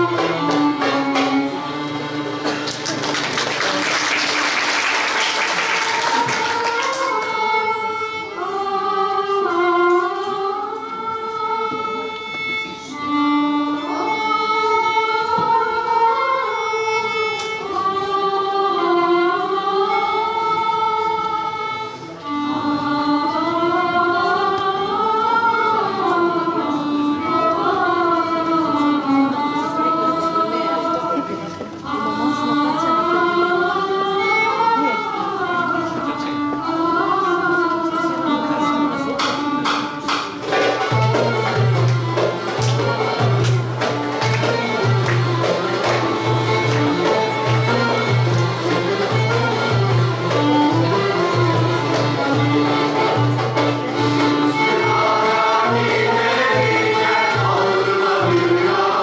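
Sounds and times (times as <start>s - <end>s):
oud: 0.0s - 59.0s
violin: 0.0s - 59.0s
choir singing: 3.6s - 12.0s, 17.6s - 31.4s, 54.3s - 59.0s
accordion: 6.1s - 59.0s.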